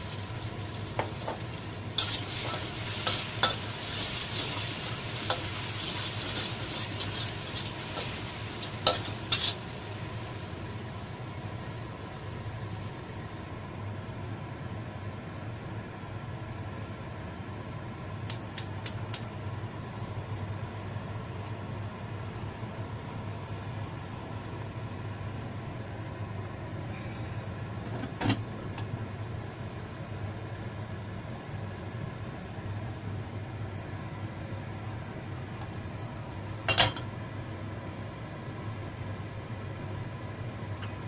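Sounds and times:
steady low hum: 0.0s - 41.0s
gas burner igniter clicks: 18.2s - 19.3s.

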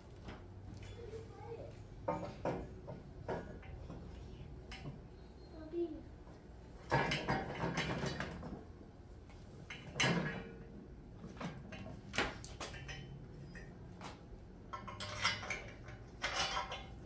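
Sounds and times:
steel frames clanking and rattling: 0.8s - 5.1s, 6.8s - 8.8s, 9.6s - 17.0s.

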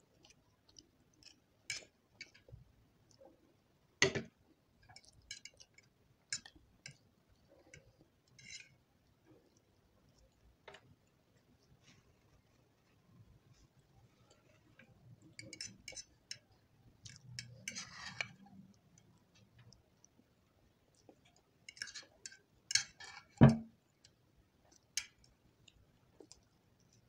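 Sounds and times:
fork scraping a plate: 7.7s - 8.8s, 15.4s - 16.4s, 17.4s - 18.5s.

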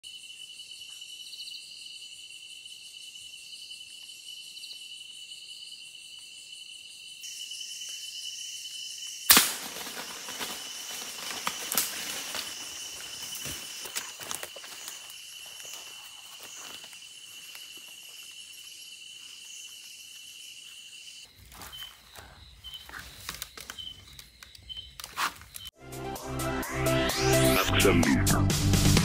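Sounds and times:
crickets trilling: 0.0s - 25.8s
gunshot: 9.3s - 10.0s
footsteps in dry leaves: 9.5s - 19.8s, 21.3s - 23.6s.

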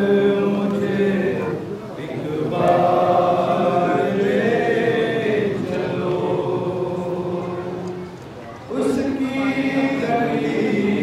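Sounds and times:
voices chanting: 0.0s - 11.0s.

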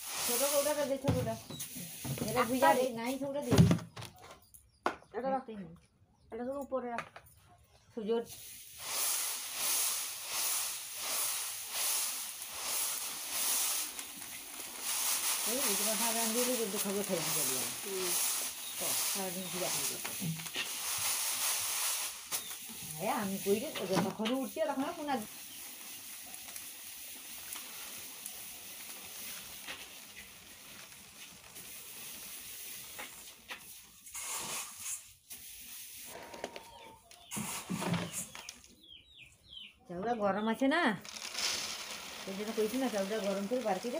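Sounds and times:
puffed rice swishing in a sieve: 0.0s - 3.4s, 8.2s - 36.2s, 41.0s - 43.9s.

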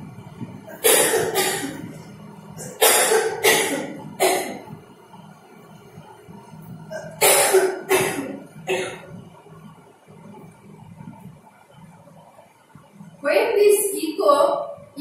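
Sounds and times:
woman coughing: 0.7s - 2.0s, 2.6s - 4.6s, 6.9s - 9.1s.

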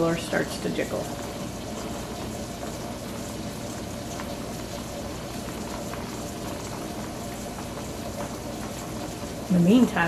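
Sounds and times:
pressure canner boiling hiss: 0.0s - 10.0s.

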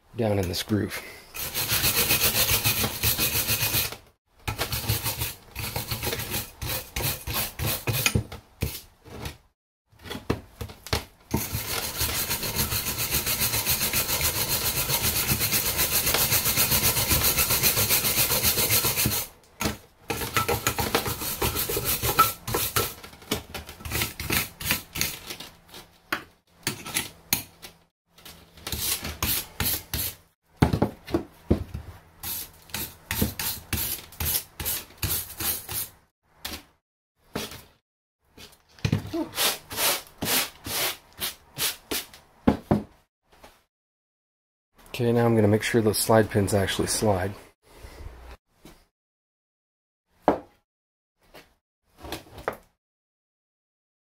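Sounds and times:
wire brush scrubbing metal: 1.4s - 3.9s, 11.4s - 19.3s.

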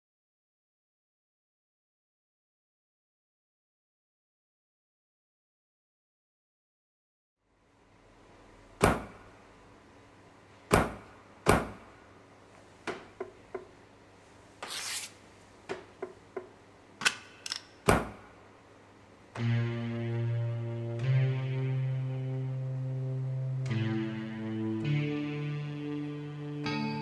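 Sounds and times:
sharp knocks and clicks: 12.8s - 13.8s, 15.7s - 18.2s
sustained keyboard chord: 19.4s - 27.0s.

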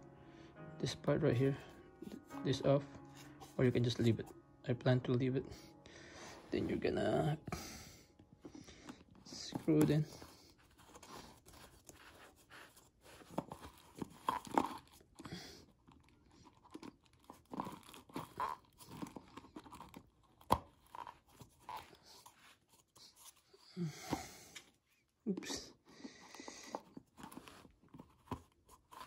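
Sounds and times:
plastic rasps and creaks: 8.8s - 22.3s.

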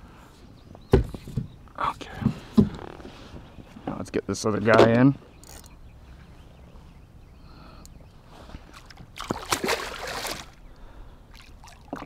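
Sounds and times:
fish splashing at the surface: 8.8s - 10.6s.

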